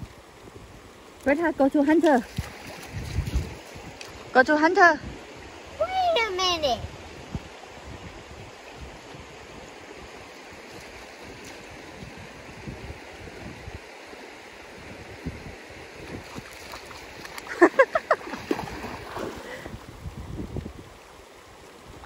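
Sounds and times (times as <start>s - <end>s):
faint water splashes: 0.0s - 22.0s
river water rushing over stones: 0.0s - 22.0s.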